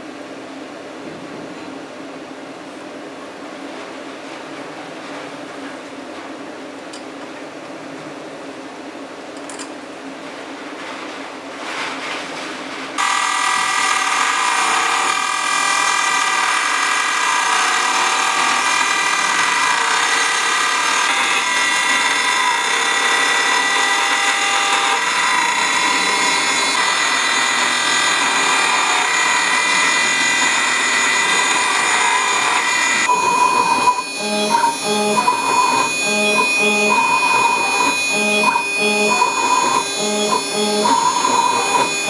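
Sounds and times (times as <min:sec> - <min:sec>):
cnc spindle milling metal: 0:13.0 - 0:42.0.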